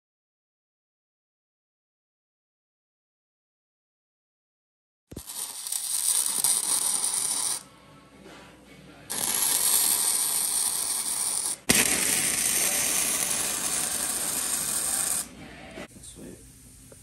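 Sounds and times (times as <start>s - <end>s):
welding arc crackling: 5.1s - 7.6s, 9.1s - 15.3s.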